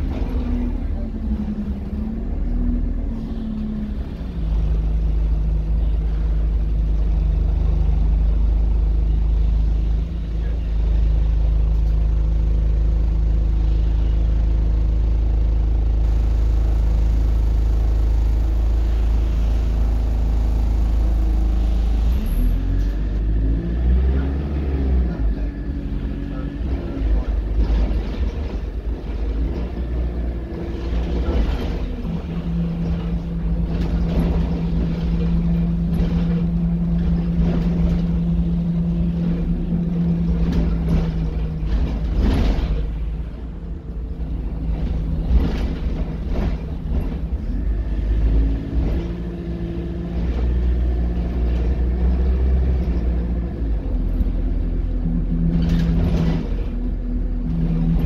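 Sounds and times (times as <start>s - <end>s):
bus body rattling: 0.0s - 23.5s, 24.1s - 58.0s
bus diesel engine running: 0.0s - 58.0s.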